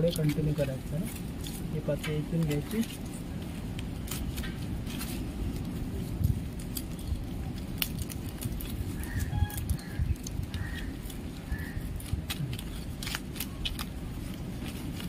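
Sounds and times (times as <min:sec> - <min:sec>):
dried palm leaves rustling: 0:00.0 - 0:15.0
crisp clicks: 0:00.1 - 0:15.0
faint bird calls: 0:09.0 - 0:11.9.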